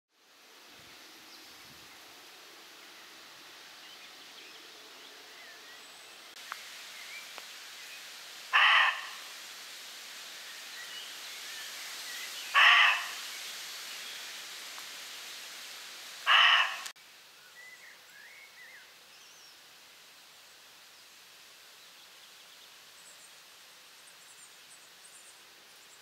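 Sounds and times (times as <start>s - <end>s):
steady outdoor hiss: 0.1s - 26.0s
loud harsh animal call: 8.5s - 9.3s, 12.5s - 13.2s, 16.2s - 16.9s.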